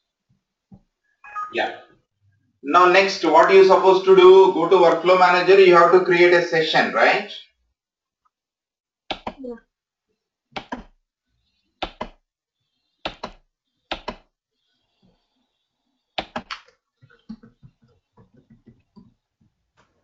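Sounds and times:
keyboard keystroke clicks: 16.2s - 16.6s.

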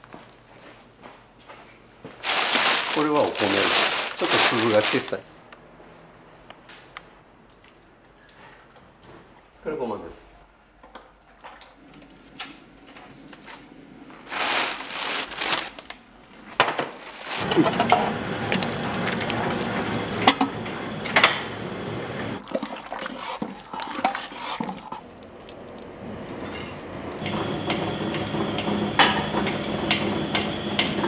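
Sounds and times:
grains rustling: 2.2s - 5.2s, 14.1s - 15.9s, 17.0s - 17.5s.

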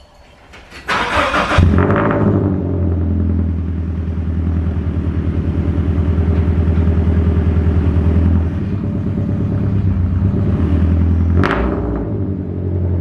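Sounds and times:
car engine pulsing exhaust: 0.9s - 13.0s.

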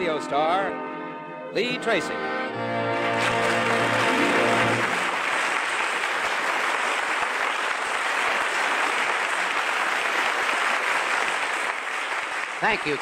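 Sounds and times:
held music notes: 0.0s - 5.2s
studio audience applauding: 2.8s - 13.0s.

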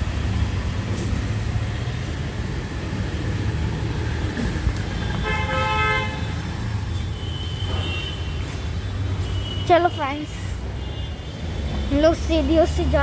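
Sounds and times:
low rumble of traffic: 0.0s - 13.0s
vehicle horn honk: 5.1s - 6.3s, 7.2s - 8.4s.

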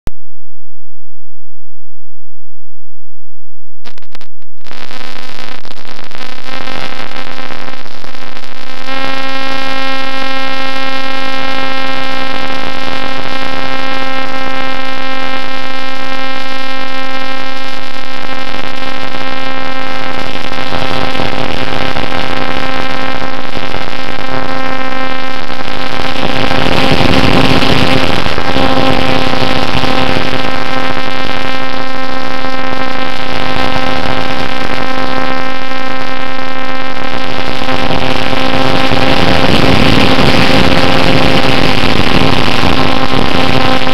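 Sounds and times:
wind noise: 3.6s - 36.3s, 37.0s - 43.9s
electric motor and propeller whine: 25.9s - 31.2s, 37.4s - 43.9s.

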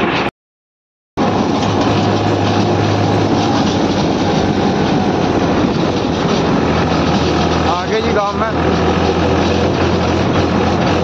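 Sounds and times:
road noise rushing: 1.2s - 11.0s
tractor engine droning: 1.2s - 11.0s.

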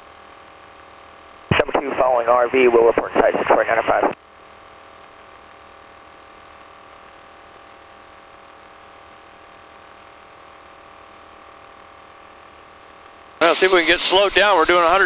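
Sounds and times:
steady humming tones: 0.0s - 15.0s
light aircraft engine drone: 1.5s - 8.6s.

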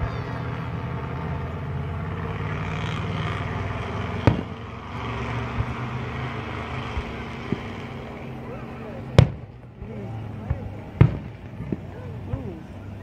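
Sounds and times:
vehicle engine humming: 0.0s - 13.0s
firework bang: 4.2s - 4.6s, 9.2s - 12.4s.

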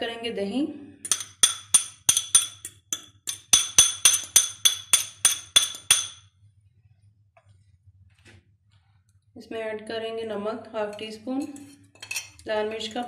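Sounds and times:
fork clinking against glass bowl: 11.5s - 12.4s.

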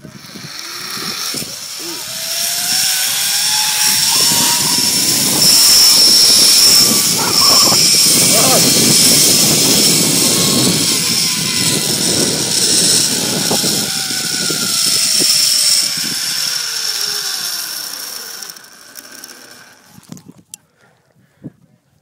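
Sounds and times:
wind on microphone: 0.0s - 16.6s, 19.9s - 22.0s
zip line pulleys whirring: 0.0s - 20.5s.

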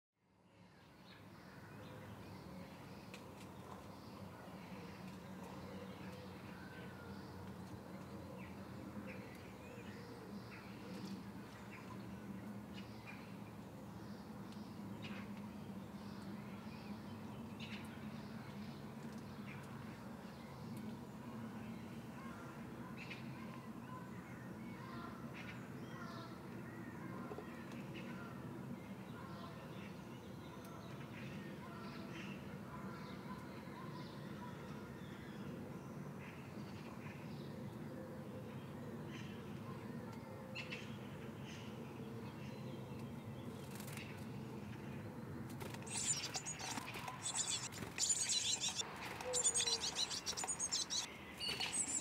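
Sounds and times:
low background noise: 0.2s - 52.0s
birds chirping: 45.7s - 52.0s.

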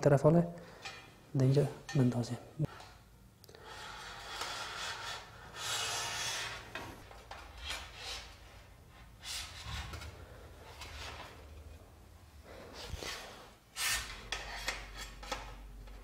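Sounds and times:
metal rail scraping on fitting: 12.8s - 16.0s.

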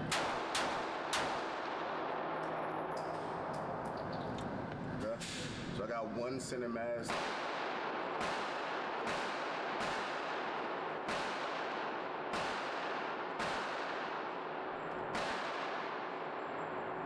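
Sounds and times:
echoing gunshots: 0.0s - 3.5s, 7.0s - 17.0s.

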